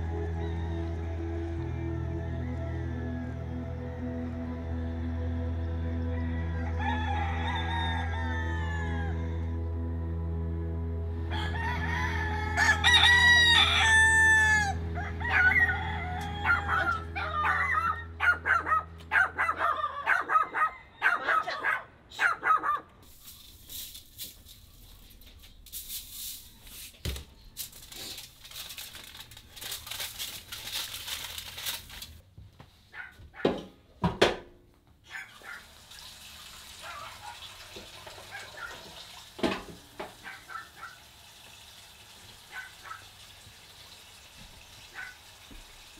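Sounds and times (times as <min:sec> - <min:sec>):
roosters crowing: 0:00.0 - 0:09.9, 0:11.2 - 0:21.8
low music drone: 0:00.0 - 0:19.8
rustling and handling noises: 0:23.0 - 0:33.2.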